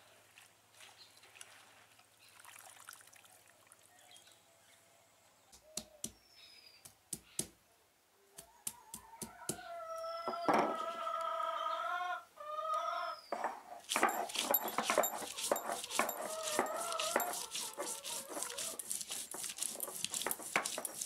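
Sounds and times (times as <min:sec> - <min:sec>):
rooster crowing: 0:08.4 - 0:13.2, 0:16.0 - 0:18.8
stone roller knocking on wood: 0:13.4 - 0:21.0
spinach swishing in water: 0:13.9 - 0:21.0.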